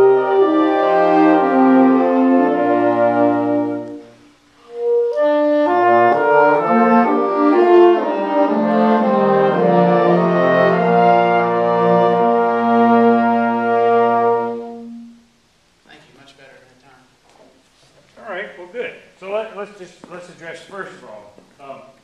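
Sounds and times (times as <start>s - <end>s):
wind ensemble playing chords: 0.0s - 15.4s.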